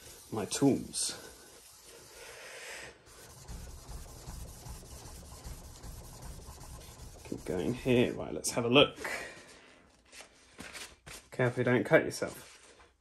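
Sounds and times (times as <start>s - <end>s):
steel blade rubbing on abrasive paper: 0.0s - 2.4s, 3.1s - 8.2s.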